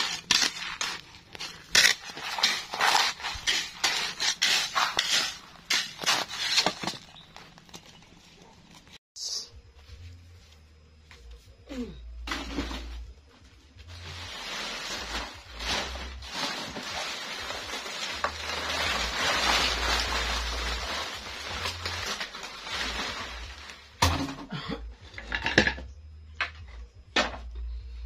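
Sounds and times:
plastic bag of crackers crinkling: 0:00.0 - 0:04.2, 0:14.0 - 0:24.0.

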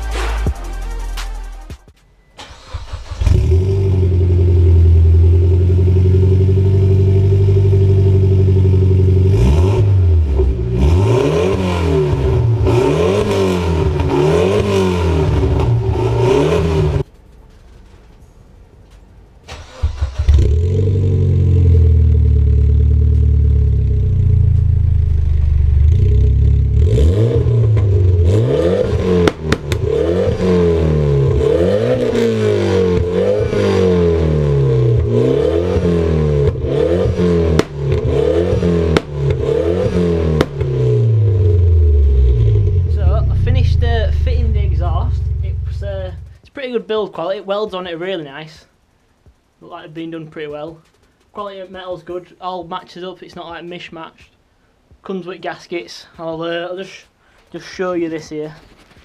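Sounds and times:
car engine starting: 0:02.3 - 0:46.8
car engine idling: 0:02.4 - 0:10.9, 0:19.6 - 0:46.5
engine rev blips: 0:19.6 - 0:46.4.

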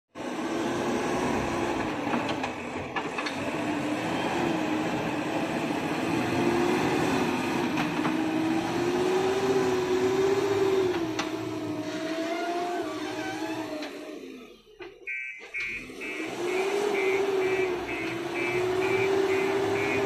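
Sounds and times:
diesel engine running: 0:00.2 - 0:12.7, 0:13.8 - 0:20.0.

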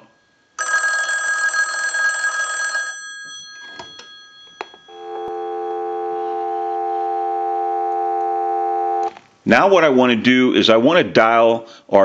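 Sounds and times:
telephone bells ringing: 0:00.6 - 0:07.1
dial tone: 0:04.9 - 0:09.1.

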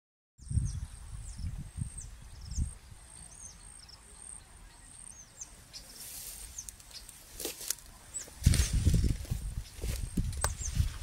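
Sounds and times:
wind rumble on microphone: 0:00.4 - 0:03.6, 0:08.2 - 0:11.0
small birds chirping: 0:00.4 - 0:11.0
rustling hiss: 0:05.2 - 0:11.0.

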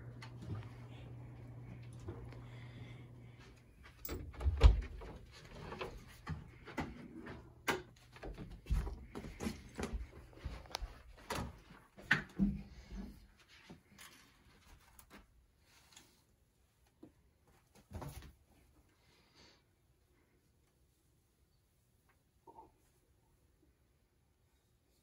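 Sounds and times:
clatters of things being handled: 0:03.6 - 0:16.2.

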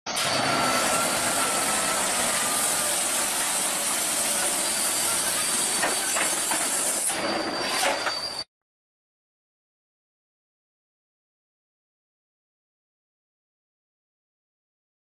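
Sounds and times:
heavy truck hissing along road: 0:00.2 - 0:08.3.

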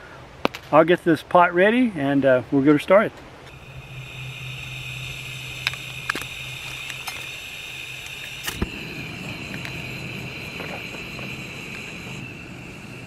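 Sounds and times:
burner flame rushing: 0:03.5 - 0:13.0
gas hissing from stove burner: 0:03.5 - 0:13.0.

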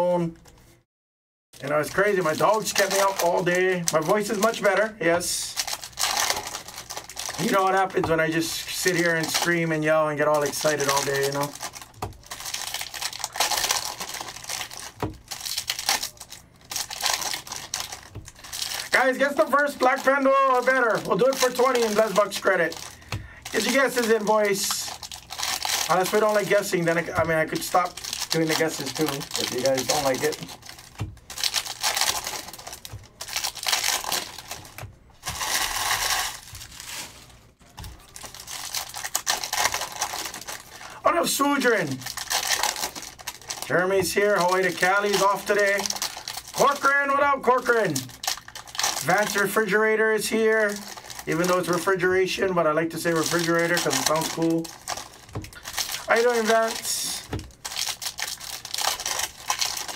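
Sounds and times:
foil wrappers crinkling and tearing: 0:01.6 - 0:59.9
cards being handled: 0:10.4 - 0:40.7.

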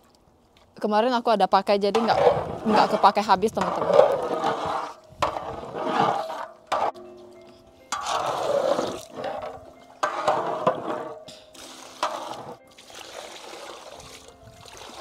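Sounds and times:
coconut milk pouring into a pot: 0:11.6 - 0:15.0.

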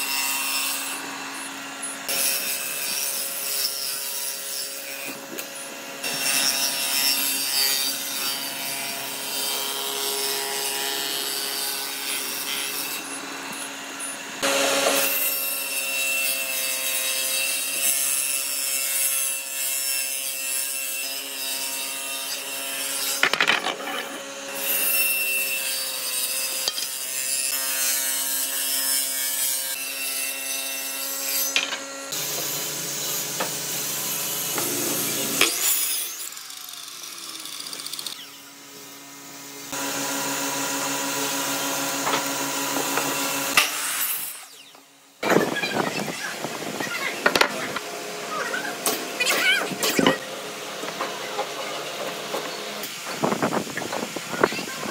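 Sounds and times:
table saw ripping wood: 0:00.0 - 0:38.4, 0:39.7 - 0:46.1.

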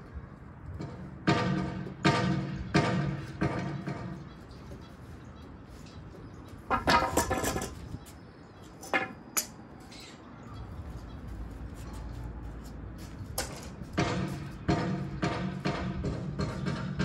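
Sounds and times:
wooden planks knocking on concrete: 0:06.1 - 0:08.0, 0:08.8 - 0:09.5, 0:13.0 - 0:17.0.

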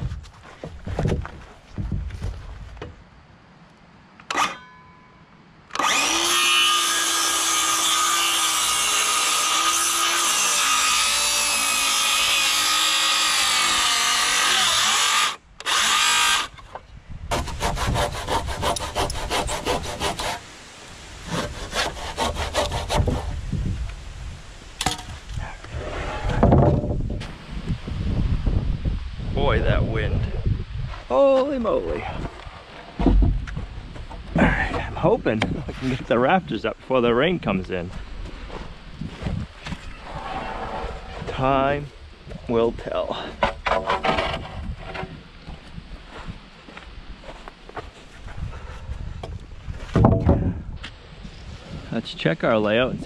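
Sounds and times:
handsaw strokes: 0:05.8 - 0:16.5, 0:17.3 - 0:20.4, 0:21.3 - 0:23.4
circular saw cutting wood: 0:05.8 - 0:16.6, 0:17.3 - 0:20.5, 0:21.3 - 0:23.4.

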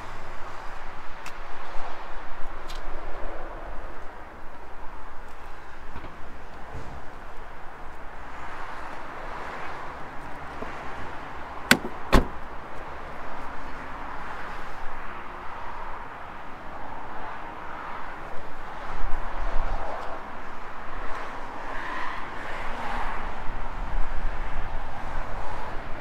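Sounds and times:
outdoor background noise: 0:00.0 - 0:26.0
sharp clicks: 0:11.7 - 0:12.3.

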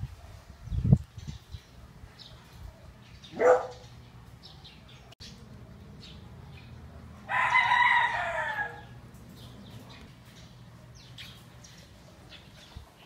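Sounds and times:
small birds chirping: 0:00.4 - 0:07.4, 0:08.7 - 0:13.0
rooster crowing: 0:07.2 - 0:09.0.

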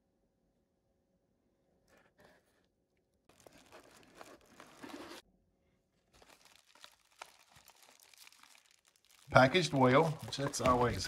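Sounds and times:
bubble wrap crinkling: 0:03.3 - 0:05.2, 0:06.0 - 0:11.0.

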